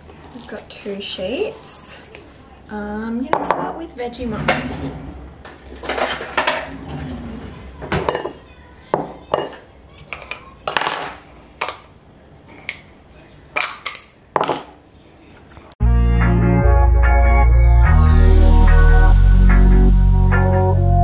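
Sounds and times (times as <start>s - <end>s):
background music: 15.8s - 21.0s.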